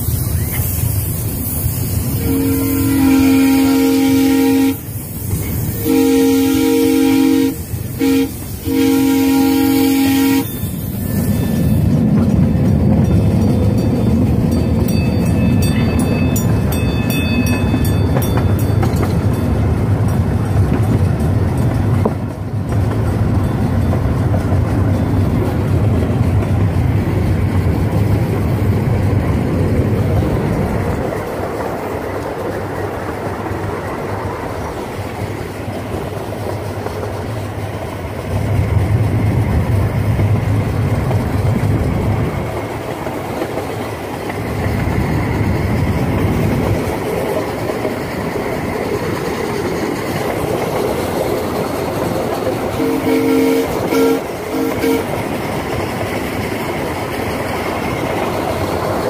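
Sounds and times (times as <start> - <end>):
train wheels rumbling on track: 0.0 - 59.0
train horn two-note chord: 2.2 - 4.8, 5.8 - 10.6, 52.8 - 55.2.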